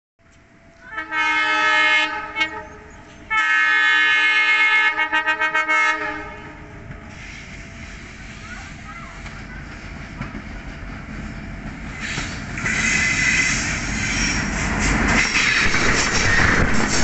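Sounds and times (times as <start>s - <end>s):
train rumbling: 0.2s - 17.0s
locomotive air horn: 0.9s - 7.3s.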